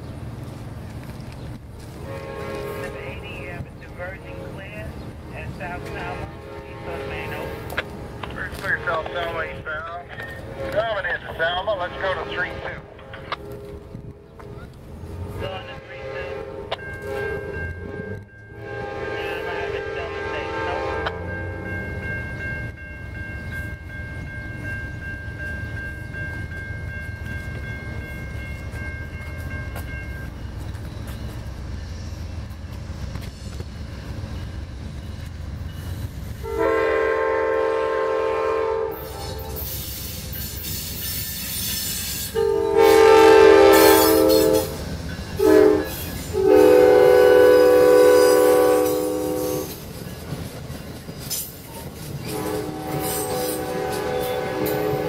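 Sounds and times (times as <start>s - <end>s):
train rumbling: 0.0s - 55.0s
train air horn: 2.0s - 3.2s, 5.7s - 9.4s, 15.6s - 17.6s, 18.6s - 21.6s, 36.4s - 40.2s, 41.6s - 44.8s, 45.4s - 49.8s, 52.2s - 55.0s.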